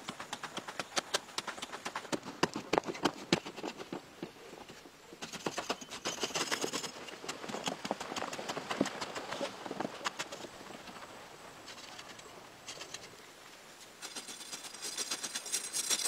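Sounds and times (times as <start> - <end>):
hoe scraping soil: 0.0 - 13.2, 13.8 - 16.0
hoe striking earth: 5.2 - 10.4.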